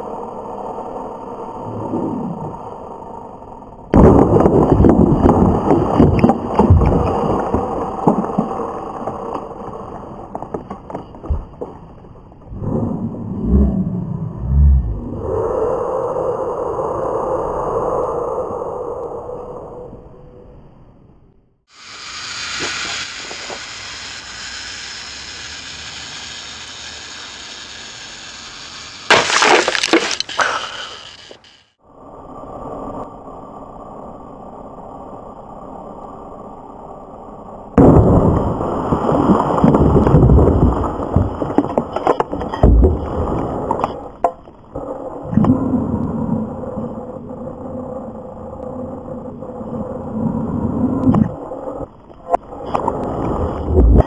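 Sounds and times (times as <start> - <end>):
explosive blast: 3.9 - 6.0, 37.8 - 38.8
fuse hissing: 21.7 - 31.8
dirt and debris showering down: 21.8 - 31.4
sharp cracks: 22.0 - 31.8
sharp clicks of debris pieces: 29.0 - 31.6
plastic toy landing: 29.1 - 31.4.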